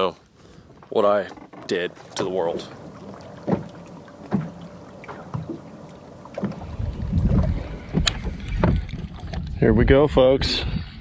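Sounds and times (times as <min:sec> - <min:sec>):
water around hull: 0:00.0 - 0:10.8
knocks and taps on boat: 0:00.7 - 0:09.3
wind rumble on microphone: 0:06.3 - 0:11.0.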